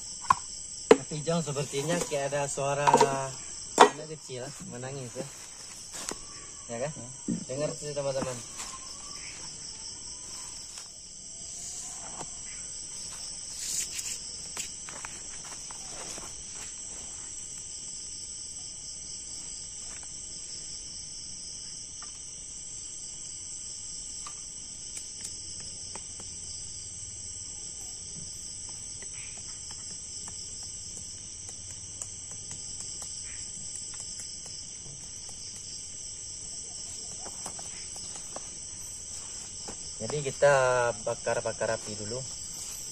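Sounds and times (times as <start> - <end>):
night insects chorus: 0.0 - 42.9
sticks knocking and clattering: 0.2 - 4.2.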